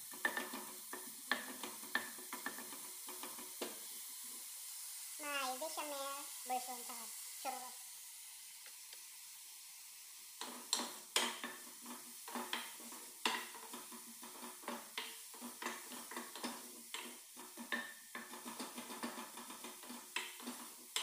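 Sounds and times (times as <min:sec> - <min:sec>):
onions sizzling: 0:00.0 - 0:21.0
wooden spoon scraping pot: 0:10.4 - 0:21.0.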